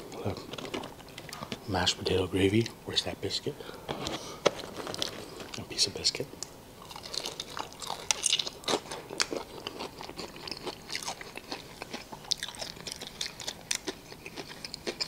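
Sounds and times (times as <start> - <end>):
crisp chewing: 6.8 - 15.0
crunching fried food: 6.8 - 15.0.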